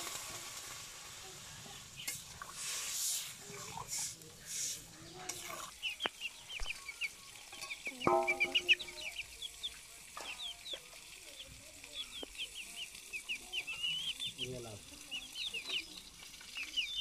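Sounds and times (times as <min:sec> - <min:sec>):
young chickens clucking: 0:05.0 - 0:17.0
high chirps: 0:06.0 - 0:09.3.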